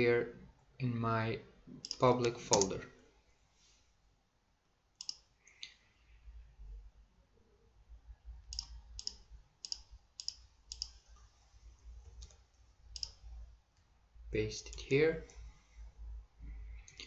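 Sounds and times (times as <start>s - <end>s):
faint low hum: 0.0s - 17.0s
computer mouse clicks: 1.8s - 2.8s, 5.0s - 5.8s, 8.4s - 11.0s, 12.1s - 13.2s.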